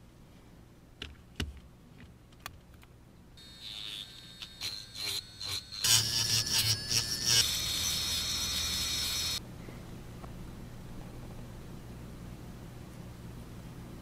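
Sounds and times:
metal tip scraping wood: 3.4s - 9.4s
rotary tool whining: 3.4s - 9.4s.

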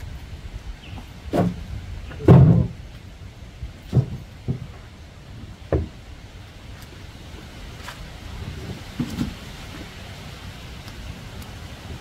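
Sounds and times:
elephant foot thumping on log: 3.8s - 4.8s.

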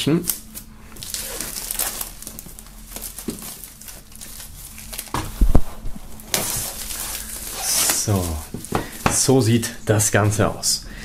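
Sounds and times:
plastic film crinkling and tearing: 0.2s - 9.0s.

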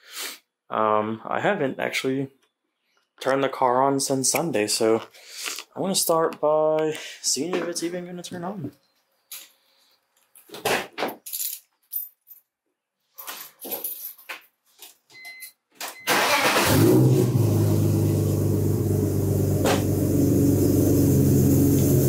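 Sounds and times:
keys jangling: 13.2s - 14.4s
car engine starting and idling: 16.1s - 22.0s.

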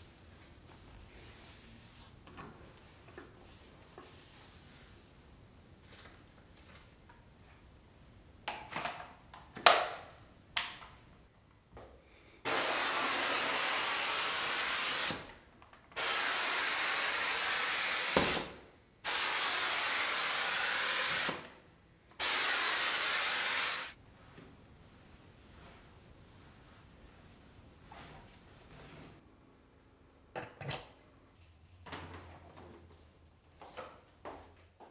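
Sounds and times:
steam cleaner hissing: 12.5s - 15.3s, 16.0s - 21.4s, 22.2s - 24.0s.

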